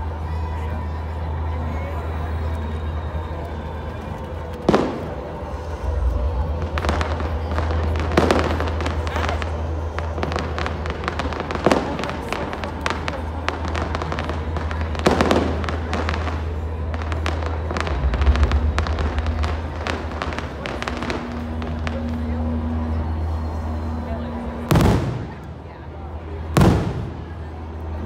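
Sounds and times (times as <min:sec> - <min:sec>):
fireworks popping and crackling: 0:03.6 - 0:23.1, 0:24.7 - 0:25.5, 0:26.5 - 0:27.5
fireworks booming: 0:04.6 - 0:25.7, 0:26.4 - 0:27.5.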